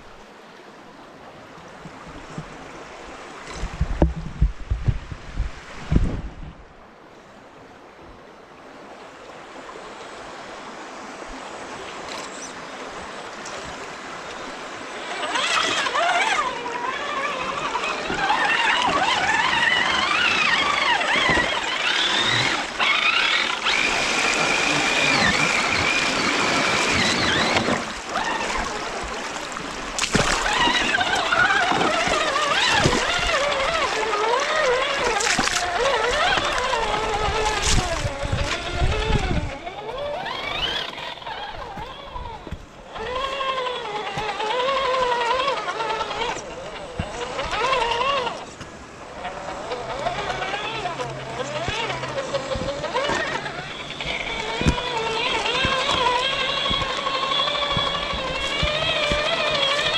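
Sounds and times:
creek water babbling over rocks: 0:12.6 - 0:59.9
electric motor whining: 0:13.6 - 0:59.9.

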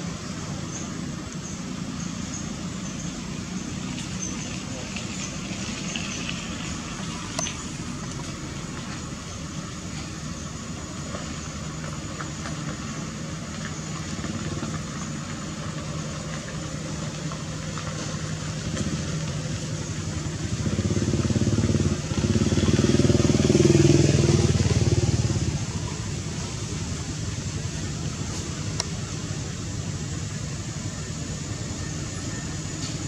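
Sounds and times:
motor vehicle engine hum: 0:00.0 - 0:33.0.

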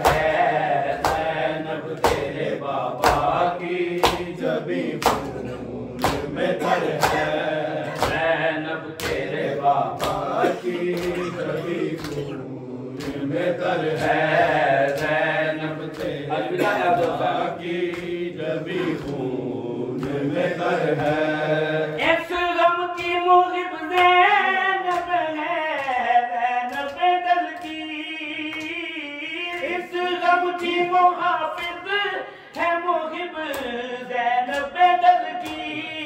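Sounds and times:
hands slapping chests: 0:00.0 - 0:08.4, 0:09.0 - 0:12.3, 0:13.0 - 0:16.3, 0:17.0 - 0:20.4
men chanting a lament: 0:00.0 - 0:36.0
single voice chanting melody: 0:04.4 - 0:09.0, 0:09.8 - 0:12.6, 0:18.6 - 0:19.3.

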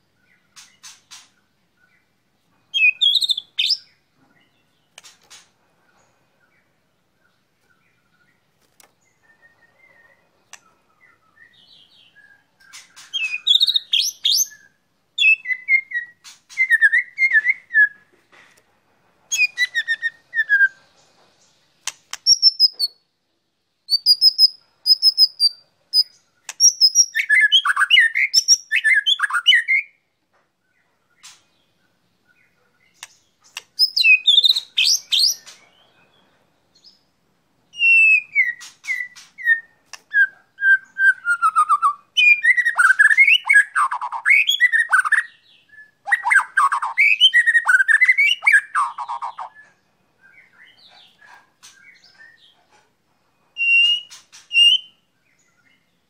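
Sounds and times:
bird singing whistled phrases: 0:13.2 - 0:18.0, 0:23.9 - 0:30.0, 0:33.8 - 0:35.5, 0:37.7 - 0:49.5, 0:53.6 - 0:55.0.

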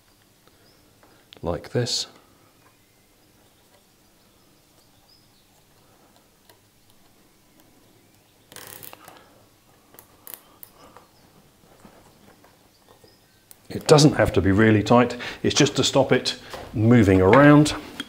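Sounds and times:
cable tie ratcheting: 0:08.5 - 0:09.2.

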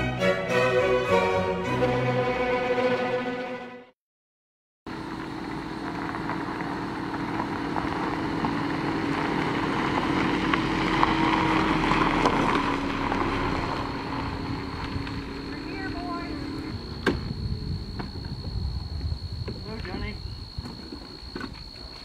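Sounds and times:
orchestral string music: 0:00.0 - 0:04.0, 0:11.4 - 0:16.8
tyres crunching on gravel: 0:04.9 - 0:17.0
car engine hum: 0:04.9 - 0:18.9.

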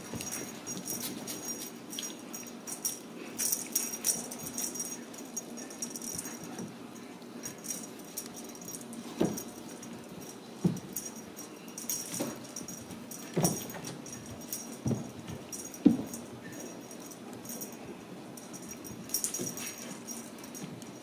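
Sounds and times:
jingling cat toy shaken: 0:00.0 - 0:21.0
soft thumps: 0:10.6 - 0:11.1.

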